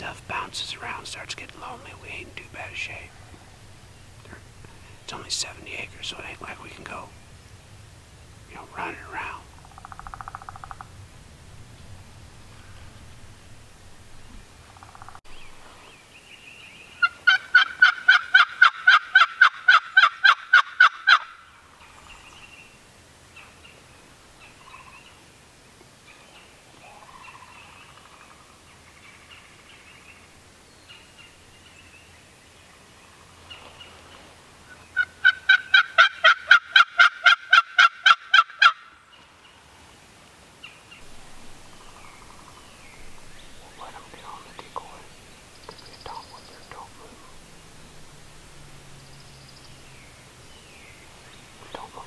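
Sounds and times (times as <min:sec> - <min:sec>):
turkey yelping: 0:17.0 - 0:21.4, 0:35.0 - 0:39.0.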